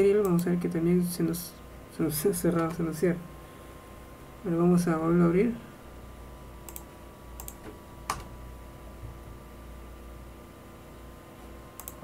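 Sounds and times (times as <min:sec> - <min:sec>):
faint steady hum: 0:00.0 - 0:12.0
computer mouse clicks: 0:06.6 - 0:08.3, 0:11.8 - 0:12.0.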